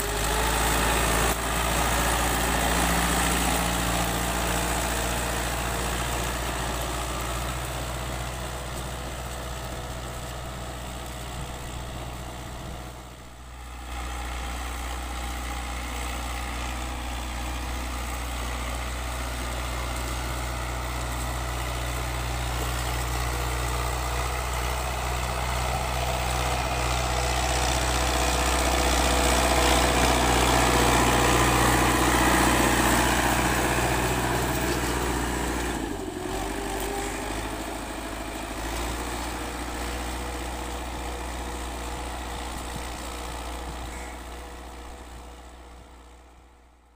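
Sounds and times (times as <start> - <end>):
tractor diesel engine under load: 0.0 - 46.9.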